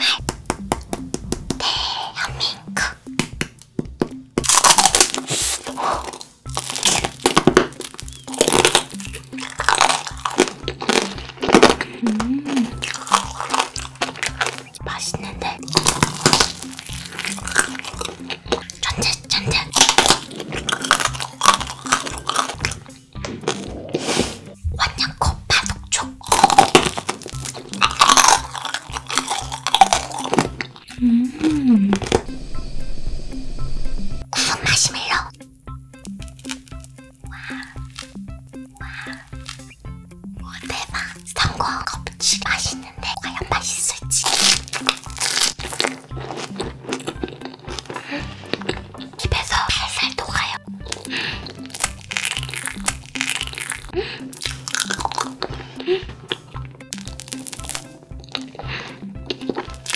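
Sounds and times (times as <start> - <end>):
background music: 0.0 - 59.9
candied sugar shell cracking: 4.4 - 23.8, 25.6 - 31.0, 36.0 - 39.8, 43.1 - 59.9
crunchy bites and chewing: 4.4 - 32.4, 36.0 - 39.9, 40.8 - 59.9.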